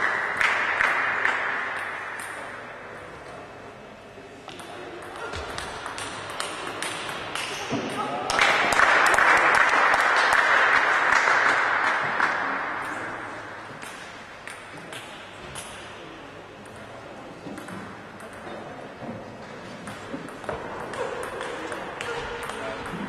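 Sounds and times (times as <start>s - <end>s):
applause: 0.0s - 1.4s, 8.3s - 12.4s.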